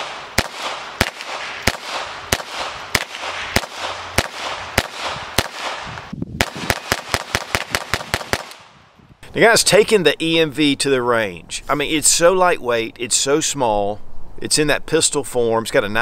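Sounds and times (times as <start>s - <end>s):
pistol shots: 0.0s - 8.8s.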